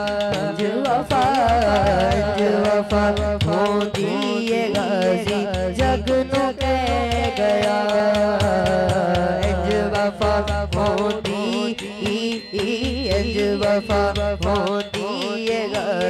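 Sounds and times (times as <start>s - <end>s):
young man singing devotional song: 0.0s - 16.0s.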